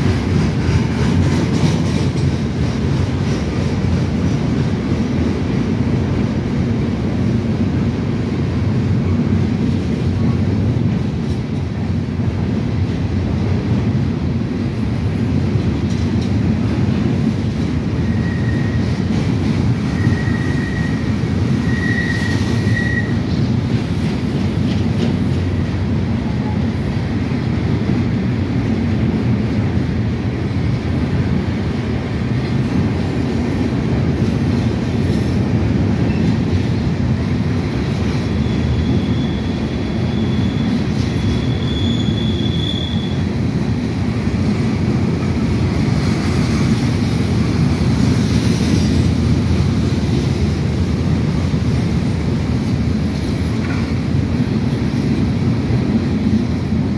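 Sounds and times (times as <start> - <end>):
train wheels rumbling on rails: 0.0 - 56.9
high wheel squeal: 18.0 - 19.0, 19.8 - 23.2, 38.3 - 43.2.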